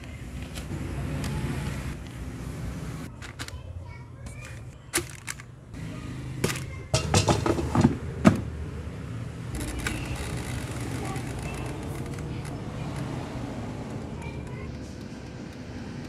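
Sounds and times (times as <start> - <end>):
air fryer fan whirring: 5.5 - 16.0
plastic basket knocking and scraping: 7.0 - 8.5
timer dial turning: 13.8 - 16.0.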